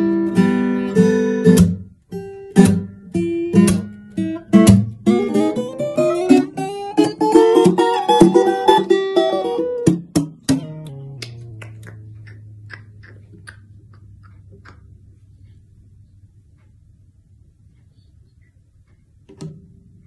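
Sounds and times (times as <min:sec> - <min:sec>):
acoustic guitar strumming chords: 0:00.0 - 0:12.6.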